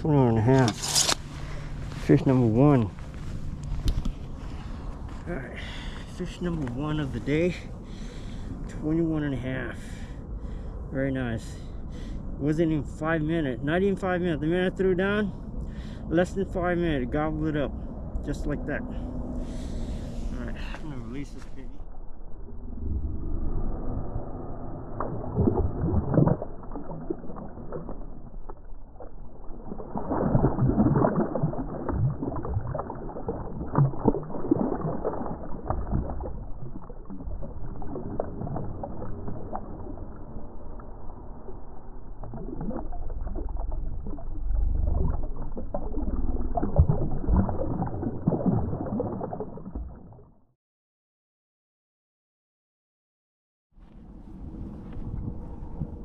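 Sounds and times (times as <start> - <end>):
fish splashing in shallow water: 24.8 - 50.2.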